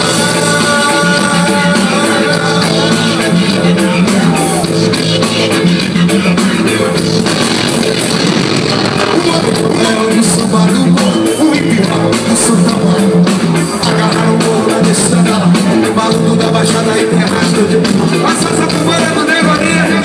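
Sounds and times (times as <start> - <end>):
bass guitar: 0.0 - 20.0
drums: 0.0 - 20.0
electric guitar: 0.0 - 20.0
person singing: 0.0 - 20.0.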